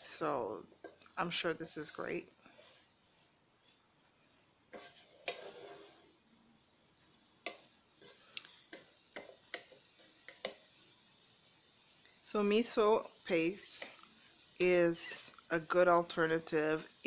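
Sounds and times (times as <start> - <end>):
faint sizzle of vegetables: 0.0 - 17.0
spatula scraping and tapping pan: 0.1 - 3.9, 4.7 - 6.2, 7.2 - 10.8, 13.5 - 14.3.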